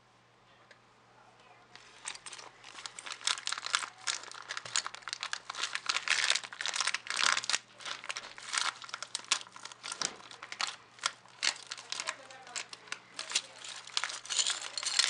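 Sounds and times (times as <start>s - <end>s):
plastic bag crinkling and tearing: 1.8s - 15.0s.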